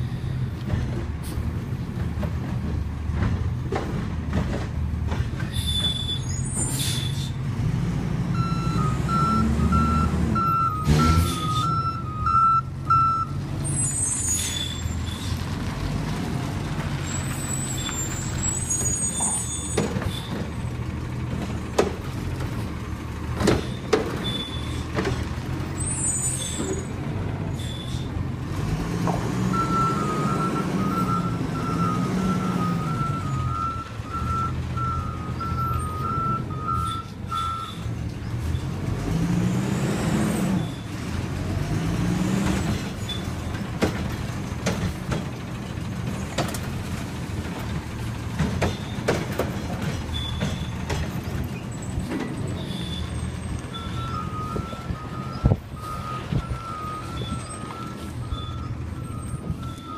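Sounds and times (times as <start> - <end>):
garbage truck engine revving: 7.4 - 59.9
reversing beeper: 8.4 - 14.3, 29.5 - 37.8, 52.6 - 59.9.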